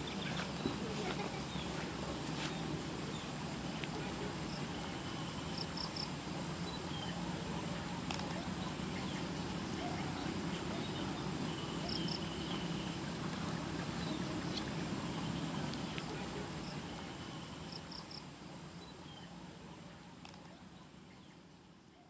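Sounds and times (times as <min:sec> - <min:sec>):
insects trilling: 0:02.4 - 0:19.2.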